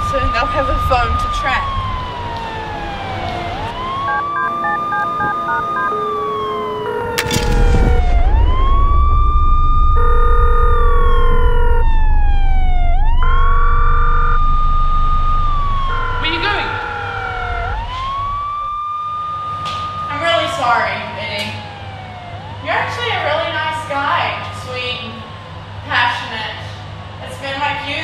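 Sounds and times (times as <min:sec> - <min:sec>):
police siren wailing: 0:00.0 - 0:27.1
steady tones: 0:03.8 - 0:22.0
low rumble: 0:07.2 - 0:19.0
short beeps: 0:09.9 - 0:11.9.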